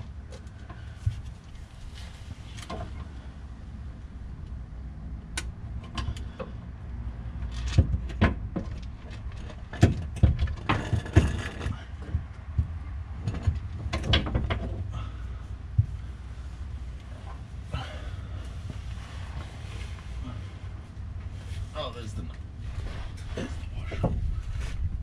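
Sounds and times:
steady low hum: 0:08.4 - 0:25.0.

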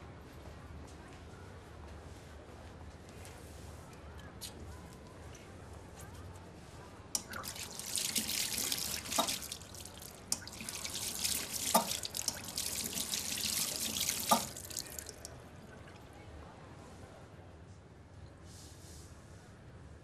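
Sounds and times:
hands washing splashes: 0:07.2 - 0:16.0
tap water splashing into basin: 0:07.2 - 0:16.0.

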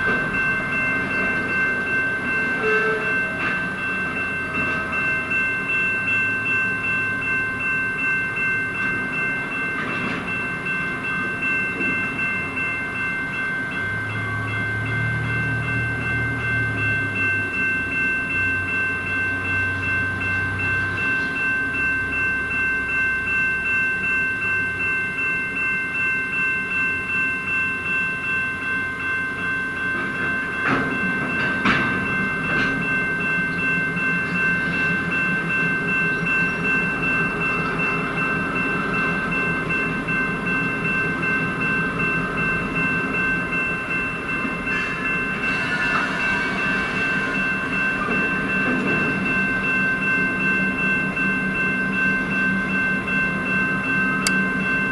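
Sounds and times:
steady high-pitched tones: 0:00.0 - 0:54.9
train cars clacking over rail joints: 0:30.0 - 0:34.9, 0:47.7 - 0:49.8.

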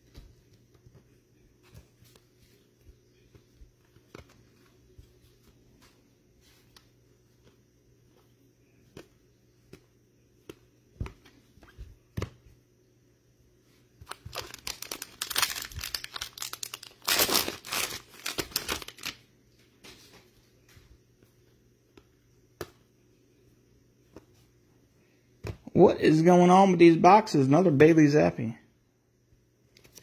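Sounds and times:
cards tapping and clicking: 0:03.2 - 0:04.8
foil wrapper tearing and crinkling: 0:14.0 - 0:19.2.

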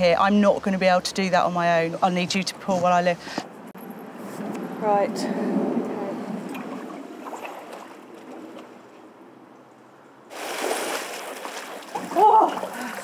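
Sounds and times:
quiet shuffling steps: 0:01.7 - 0:04.7
feet splashing in water: 0:06.5 - 0:08.9, 0:10.3 - 0:13.0.

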